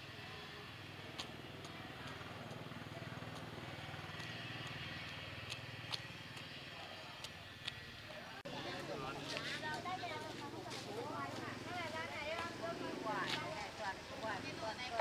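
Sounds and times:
small engine running: 0:00.0 - 0:15.0
sharp clicks: 0:03.3 - 0:08.0.

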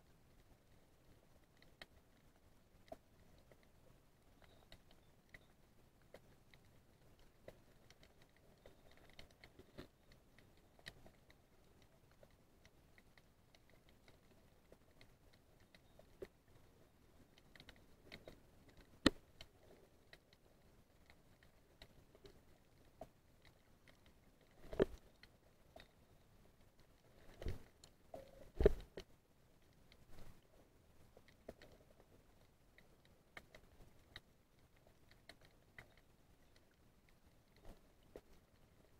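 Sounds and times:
faint underwater clicks and crackles: 0:00.0 - 0:38.9.

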